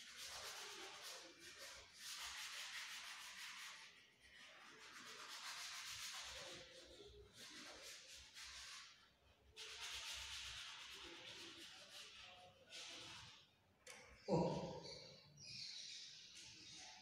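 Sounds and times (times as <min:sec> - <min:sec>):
chalk rubbing on chalkboard: 0:00.0 - 0:13.6.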